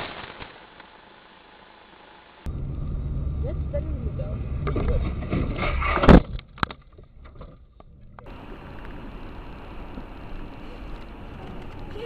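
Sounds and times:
steady low hiss: 7.7 - 12.0.

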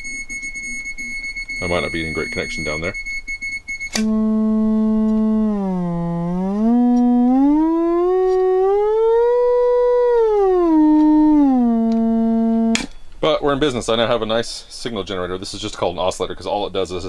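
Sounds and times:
buzzy oscillator tone gliding: 0.0 - 12.9.

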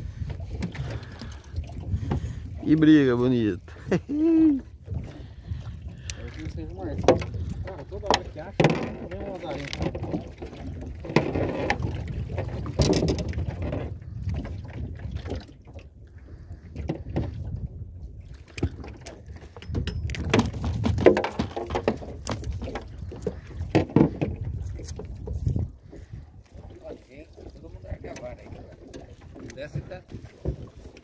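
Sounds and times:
knocks and clicks on hull: 0.0 - 3.8, 4.8 - 31.0
water lapping against boat: 0.0 - 31.0.

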